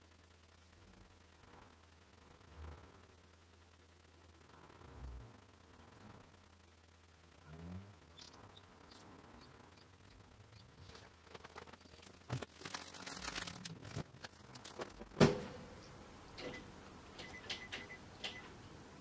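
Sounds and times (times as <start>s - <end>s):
small clicks and rustles: 8.2s - 15.2s.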